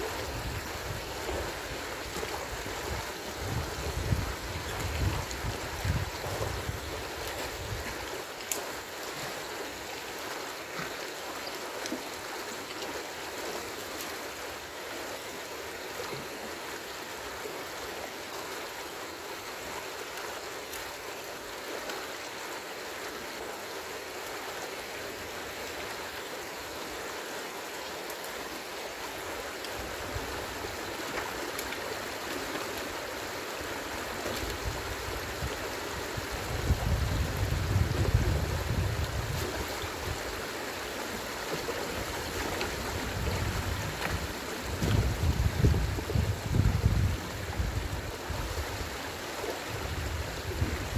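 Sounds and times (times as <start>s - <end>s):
stream water rushing: 0.0s - 50.9s.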